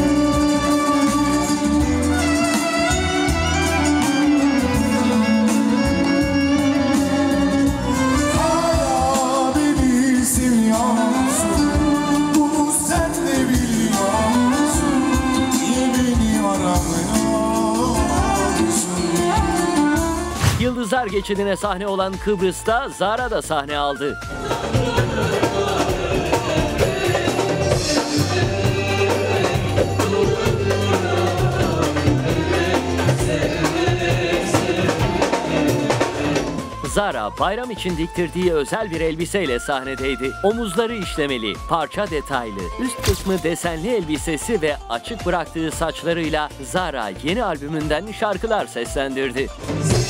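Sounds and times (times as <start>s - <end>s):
live band music: 0.0s - 50.0s
man singing into microphone: 6.9s - 21.7s, 23.9s - 43.5s.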